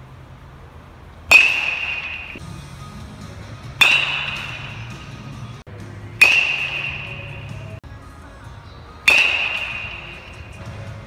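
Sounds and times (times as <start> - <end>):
metal bat hitting baseball: 1.3 - 2.4, 3.6 - 5.3, 6.1 - 7.8, 9.0 - 10.7.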